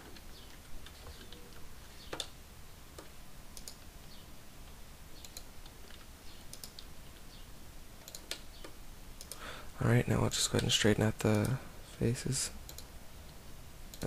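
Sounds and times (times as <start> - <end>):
keyboard and mouse clicks: 0.0 - 3.9, 5.2 - 6.9, 8.0 - 9.4, 10.5 - 10.7, 12.7 - 12.9.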